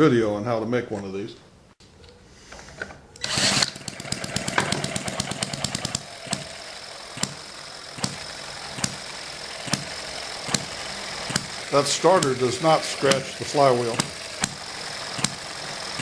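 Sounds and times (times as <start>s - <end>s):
cordless drill whirring: 3.2s - 16.0s
engine firing pops: 8.0s - 9.0s, 9.6s - 14.6s, 15.2s - 15.4s.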